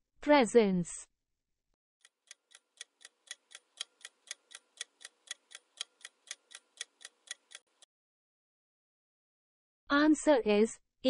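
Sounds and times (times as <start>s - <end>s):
clock ticking: 2.0s - 7.9s.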